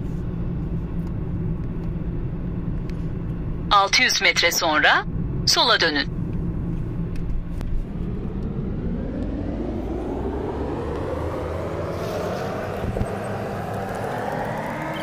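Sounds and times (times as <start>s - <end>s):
car engine and road rumble: 0.0s - 15.0s
hum rising in pitch: 6.1s - 15.0s.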